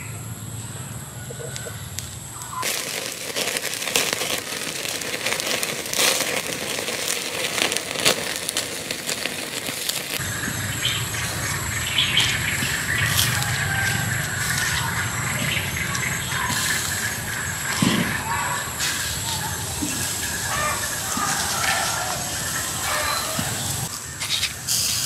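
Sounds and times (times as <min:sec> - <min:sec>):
wood fire crackling and popping: 0:02.0 - 0:25.0.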